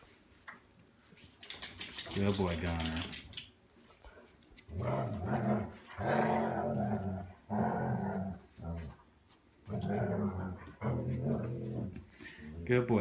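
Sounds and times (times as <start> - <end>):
dogs growling: 4.7 - 9.0, 9.6 - 12.7.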